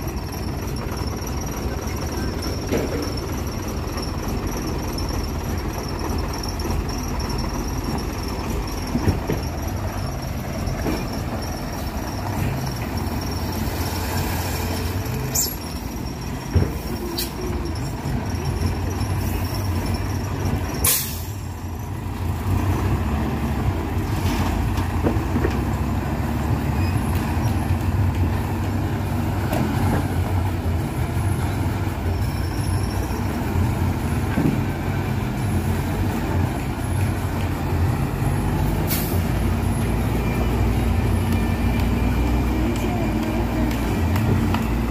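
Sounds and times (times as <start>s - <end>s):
diesel truck engines rumbling: 0.0s - 44.9s
air brake hiss: 20.8s - 21.5s, 38.8s - 39.2s.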